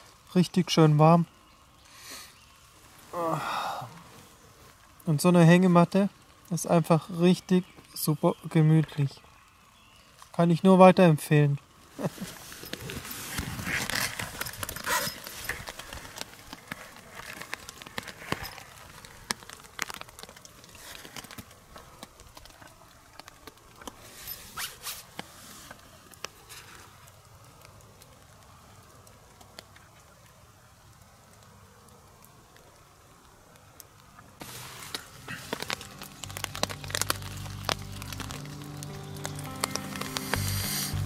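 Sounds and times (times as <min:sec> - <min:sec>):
faint steady hiss: 0:00.0 - 0:41.0
fabric rustling: 0:34.4 - 0:38.6.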